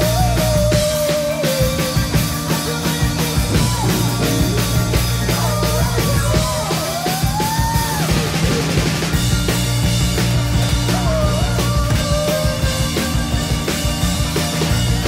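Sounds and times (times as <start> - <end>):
live rock band playing: 0.0 - 15.0
high sliding melody line: 1.2 - 7.2.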